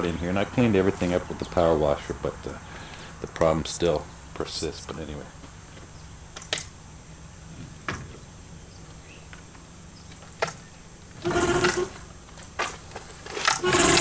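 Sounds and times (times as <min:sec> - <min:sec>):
recoil starter cord whirring: 0:11.1 - 0:14.0.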